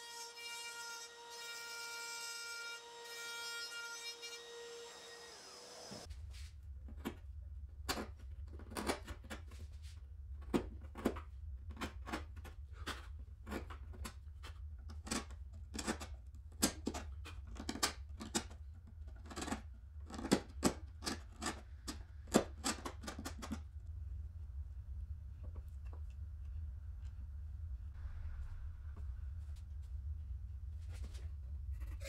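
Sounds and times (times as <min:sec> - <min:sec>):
wood chisel cutting and scraping: 0:00.0 - 0:06.1, 0:10.4 - 0:23.6, 0:31.7 - 0:32.0.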